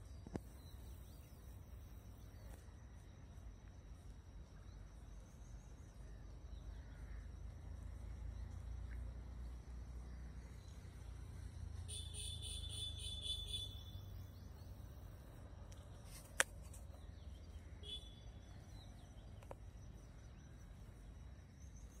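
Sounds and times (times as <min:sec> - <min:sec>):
high chirping call: 0:11.9 - 0:14.8.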